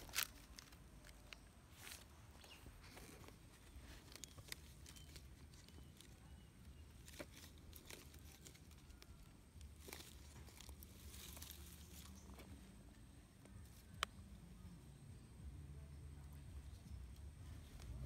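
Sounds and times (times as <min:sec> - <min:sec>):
faint clicks and rustles: 0:00.0 - 0:14.4.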